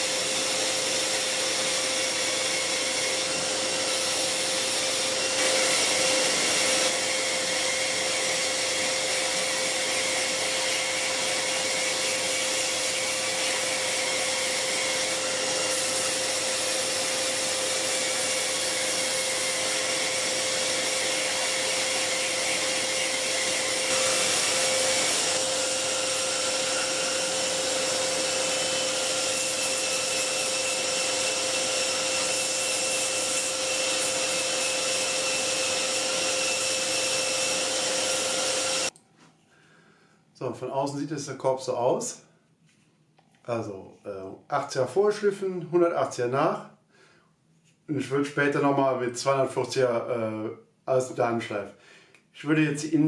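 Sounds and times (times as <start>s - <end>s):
belt sander sanding wood: 0.0s - 38.9s
vacuum cleaner running: 0.0s - 39.0s.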